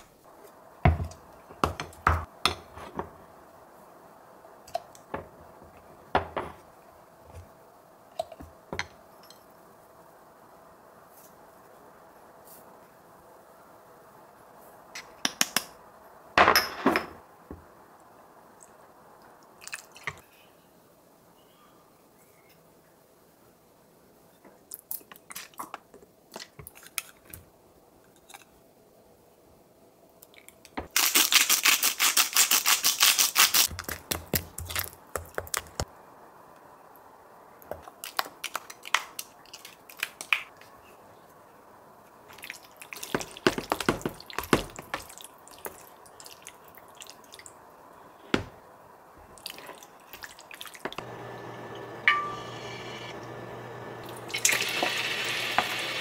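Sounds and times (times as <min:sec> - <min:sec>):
cooktop humming: 0:04.7 - 0:07.5, 0:50.8 - 0:56.0.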